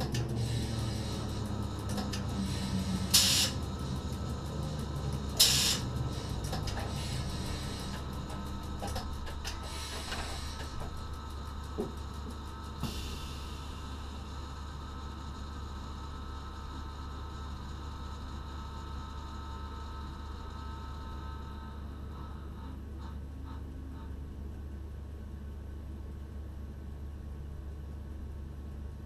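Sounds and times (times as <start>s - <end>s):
air hiss: 2.4s - 3.6s, 5.4s - 6.3s, 12.8s - 14.0s.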